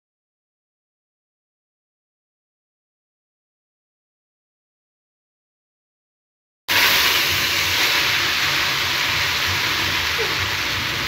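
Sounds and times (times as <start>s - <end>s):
fat sizzling loudly in a pot: 6.7s - 11.0s.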